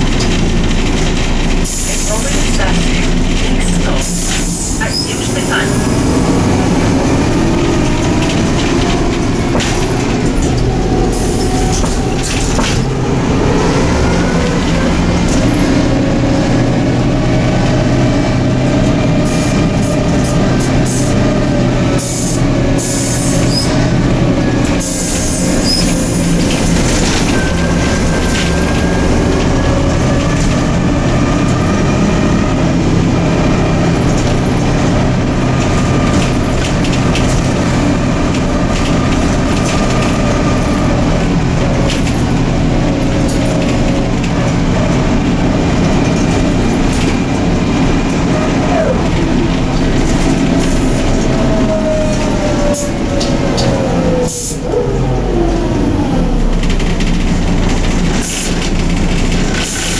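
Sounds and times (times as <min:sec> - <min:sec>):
rattles and knocks: 0:00.0 - 0:04.5, 0:06.8 - 0:16.3
bus engine running: 0:00.0 - 0:59.9.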